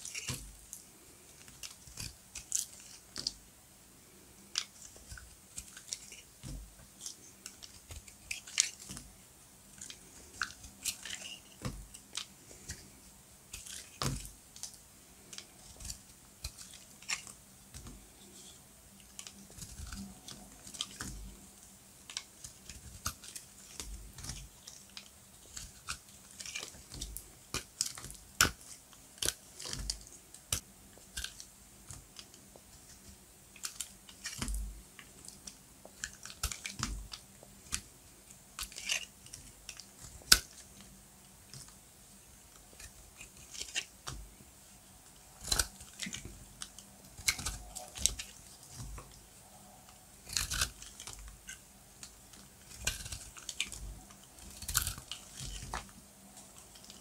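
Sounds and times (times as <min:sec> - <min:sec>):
knife crunching through soap: 0:36.0 - 0:37.8, 0:45.4 - 0:49.1, 0:50.2 - 0:57.0.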